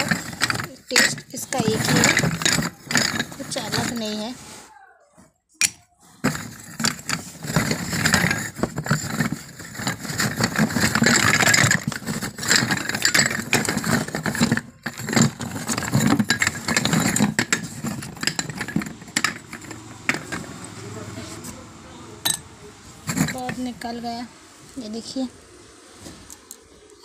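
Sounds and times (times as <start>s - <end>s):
clay cups clinking together: 22.2s - 22.5s.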